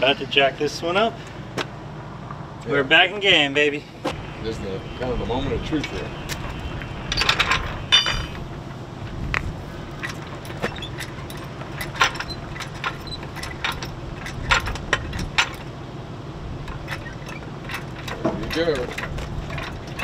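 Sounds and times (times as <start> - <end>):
metallic ringing clank: 5.7 - 8.6
jack and tools clinking: 5.8 - 8.7, 9.9 - 15.8, 16.6 - 20.0.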